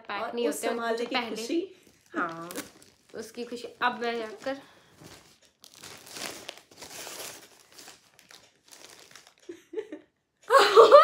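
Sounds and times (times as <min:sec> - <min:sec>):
plastic bag rustling: 0:00.8 - 0:09.4
plastic packaging crackling: 0:00.9 - 0:09.6.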